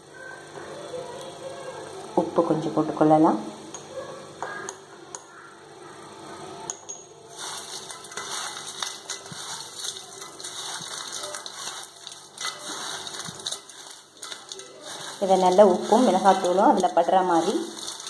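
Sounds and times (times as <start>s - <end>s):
crisp strands rustling in metal bowl: 7.3s - 18.0s.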